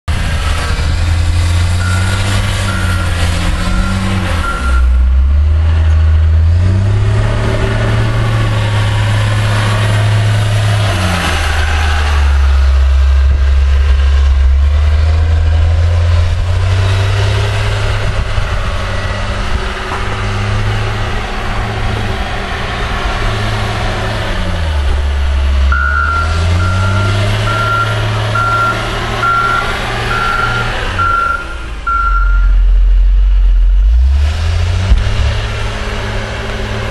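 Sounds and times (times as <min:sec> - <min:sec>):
diesel engine revving: 0:00.1 - 0:36.9
reverse alarm beeping: 0:01.8 - 0:05.0, 0:25.7 - 0:32.6.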